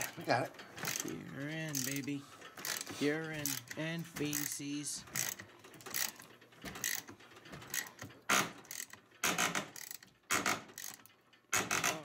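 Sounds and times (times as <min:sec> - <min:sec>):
ratchet wrench clicking: 0:00.8 - 0:12.0.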